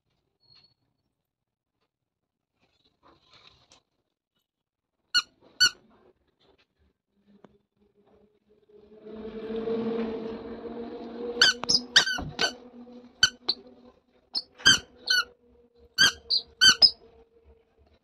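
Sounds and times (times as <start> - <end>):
rubber squeaker squeaking: 5.2 - 5.8, 11.4 - 12.6, 13.2 - 13.6, 14.4 - 15.3, 16.0 - 17.0.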